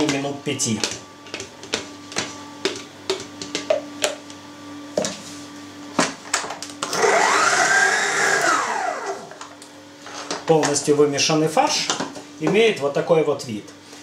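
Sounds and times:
stand mixer motor whine: 0:06.8 - 0:09.6.

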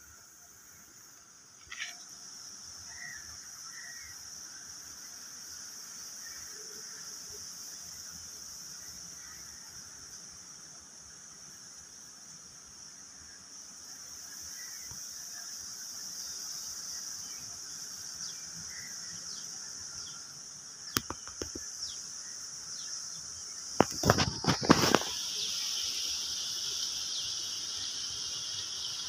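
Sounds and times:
high-pitched insect chorus: 0:00.0 - 0:29.0
sharp clicks: 0:20.9 - 0:21.7.

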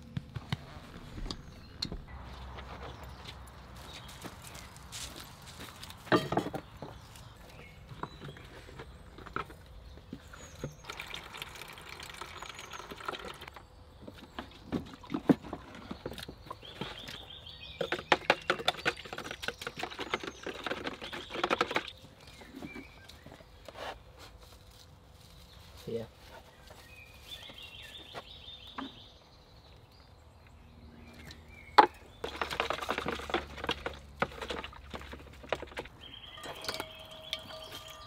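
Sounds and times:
water running into plastic bowl: 0:10.8 - 0:13.6.

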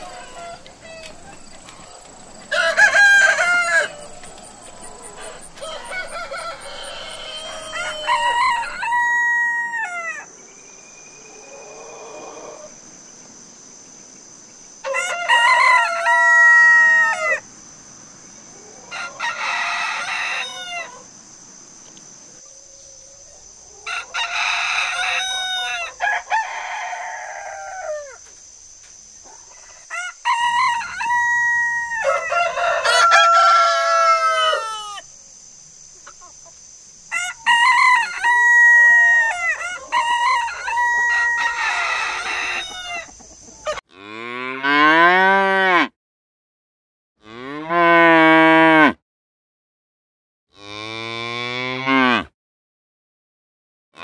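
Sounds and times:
roosters crowing: 0:00.0 - 0:12.8, 0:14.8 - 0:17.4, 0:18.5 - 0:21.1, 0:22.4 - 0:28.2, 0:29.4 - 0:35.1, 0:37.0 - 0:45.9
insects chirring: 0:00.0 - 0:43.8.

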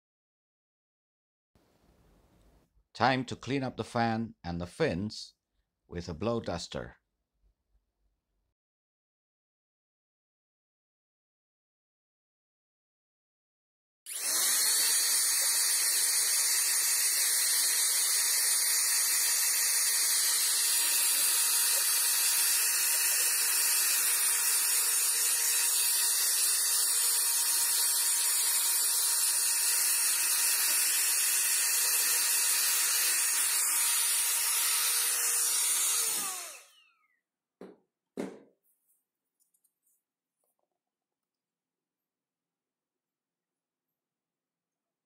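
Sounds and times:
electric blow duster blasting air: 0:14.1 - 0:24.2, 0:29.6 - 0:36.8.

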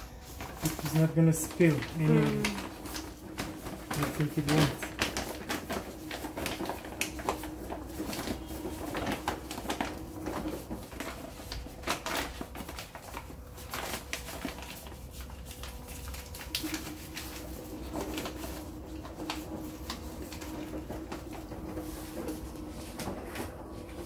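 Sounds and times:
litter granules sliding and ticking: 0:00.0 - 0:11.8.

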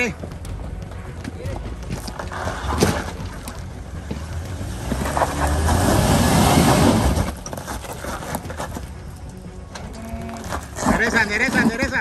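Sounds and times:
engine revving under load: 0:03.9 - 0:07.4
tyres spinning on rock: 0:10.1 - 0:12.0.

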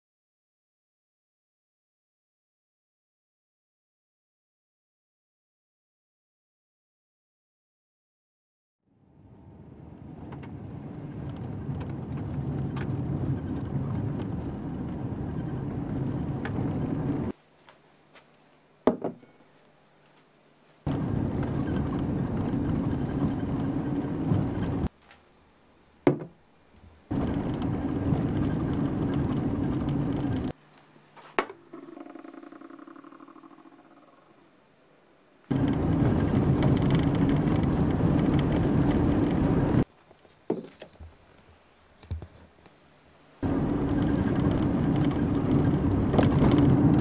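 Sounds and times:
car engine rumble: 0:09.1 - 0:17.3, 0:20.9 - 0:24.9, 0:27.1 - 0:30.5, 0:35.5 - 0:39.8, 0:43.4 - 0:47.0
steady low hum: 0:09.1 - 0:18.1, 0:20.8 - 0:24.9, 0:26.8 - 0:39.8, 0:42.8 - 0:47.0.

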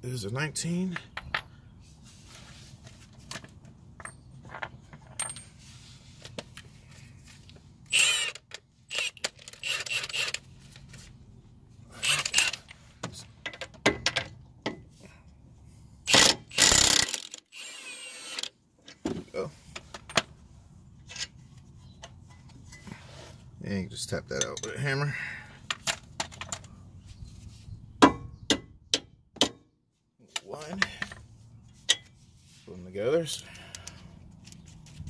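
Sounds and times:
wrench clinking on metal: 0:00.9 - 0:01.6, 0:24.3 - 0:24.9, 0:33.2 - 0:34.7.

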